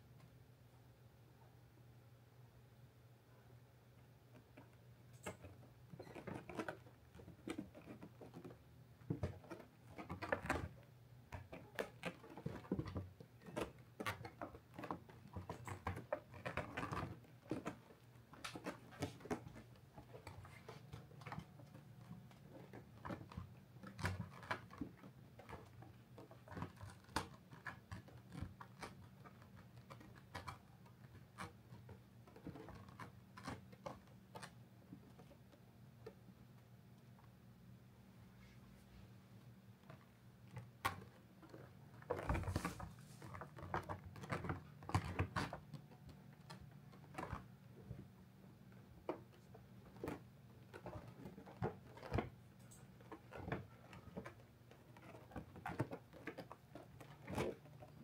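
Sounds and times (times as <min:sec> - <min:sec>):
paws scratching and rustling felt: 0:40.5 - 0:47.5.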